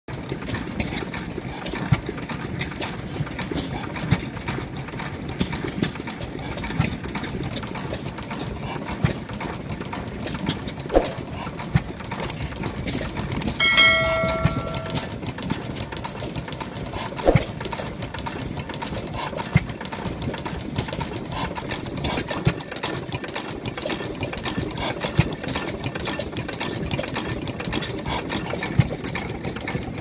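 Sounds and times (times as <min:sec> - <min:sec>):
stationary engine clattering: 0:00.1 - 0:30.0
engine firing knock: 0:08.2 - 0:21.0.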